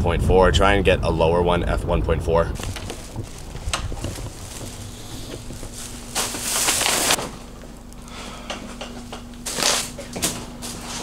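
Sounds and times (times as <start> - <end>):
faint steady hum: 0.0 - 11.0
loud rustle: 2.6 - 7.2
handling knocks: 2.6 - 7.4.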